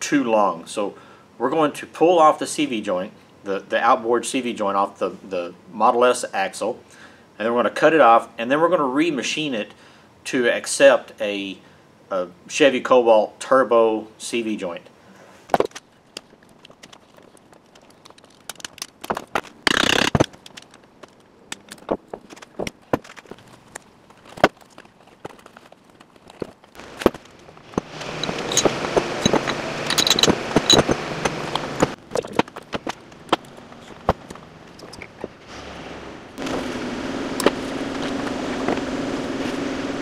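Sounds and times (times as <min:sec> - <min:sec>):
metal scraping and rattling: 0:16.4 - 0:36.8
metallic clicks and clinks: 0:26.2 - 0:32.5.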